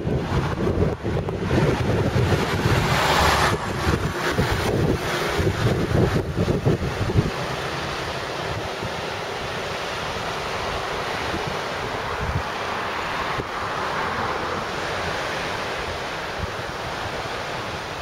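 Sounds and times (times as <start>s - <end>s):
surf washing onto beach: 0.0s - 18.0s
wind buffeting microphone: 0.0s - 18.0s.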